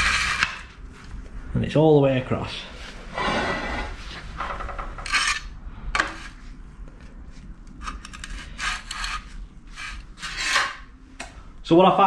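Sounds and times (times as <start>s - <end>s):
spirit level scraping over steel: 3.1s - 4.2s, 5.0s - 5.5s, 8.4s - 10.9s.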